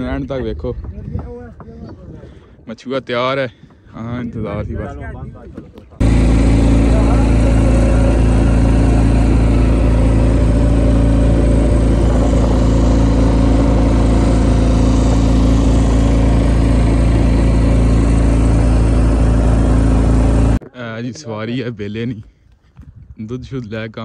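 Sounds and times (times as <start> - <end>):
boat engine running: 5.6 - 20.6.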